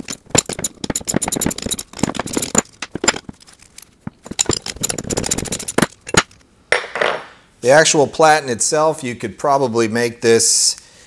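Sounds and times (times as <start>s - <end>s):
ratchet wrench clicking: 0.0s - 2.6s, 4.3s - 6.2s.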